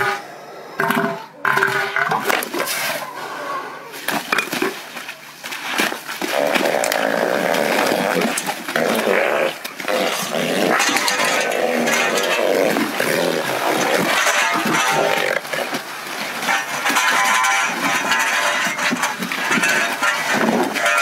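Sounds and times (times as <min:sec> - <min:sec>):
elephant seals bellowing: 0:00.0 - 0:04.1, 0:06.2 - 0:21.0.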